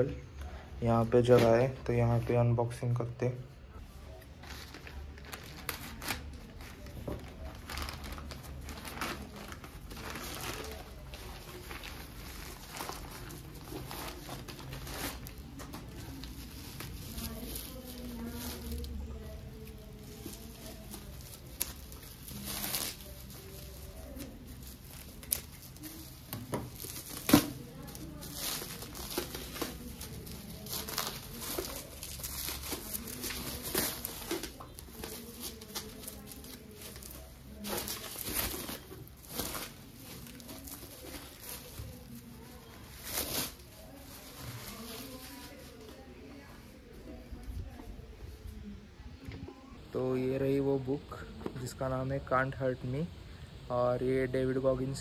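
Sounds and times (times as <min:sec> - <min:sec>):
plastic crinkling and rustling: 0:03.8 - 0:48.6
plastic bag tearing: 0:04.4 - 0:45.8.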